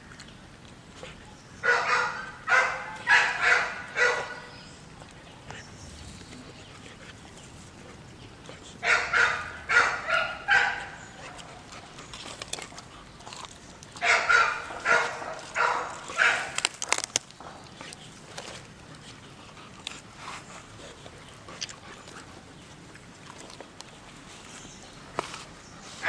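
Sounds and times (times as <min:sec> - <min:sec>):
dog barking: 0:01.6 - 0:04.5, 0:08.8 - 0:11.5, 0:14.0 - 0:16.6.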